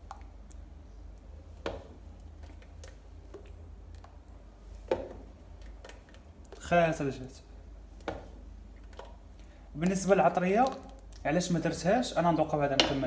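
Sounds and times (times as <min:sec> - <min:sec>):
ladle knocking on clay bowl: 0:12.7 - 0:13.0.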